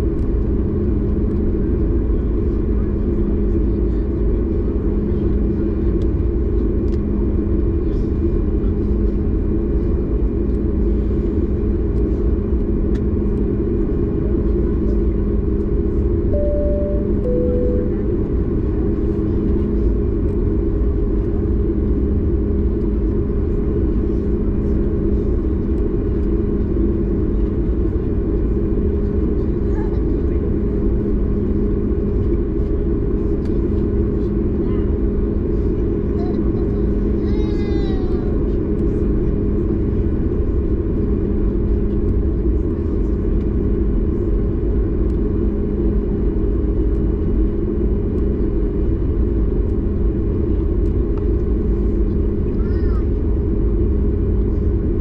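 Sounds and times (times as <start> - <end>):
airplane engine cabin rumble: 0.0 - 55.0
two-note cabin chime: 16.4 - 18.1.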